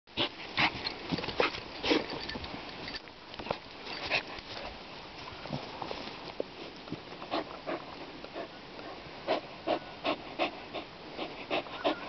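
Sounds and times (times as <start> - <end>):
dog sniffing: 6.6 - 12.0.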